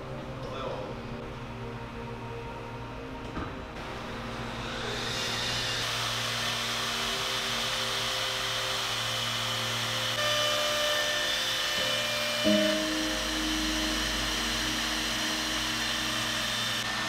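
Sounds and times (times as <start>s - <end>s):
router cutting wood: 4.5s - 17.0s.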